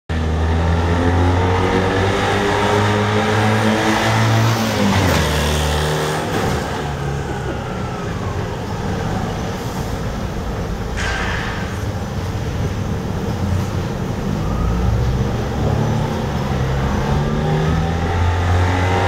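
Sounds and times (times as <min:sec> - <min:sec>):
small truck engine running: 0:02.5 - 0:11.0.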